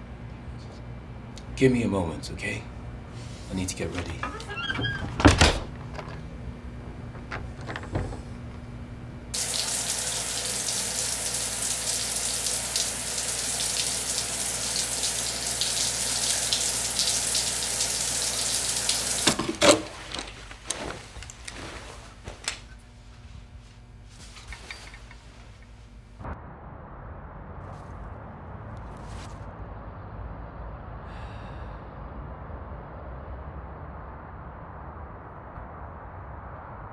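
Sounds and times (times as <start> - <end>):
shower spray hissing: 9.4 - 19.4
light clicks and rustles: 19.6 - 22.8, 24.2 - 25.8.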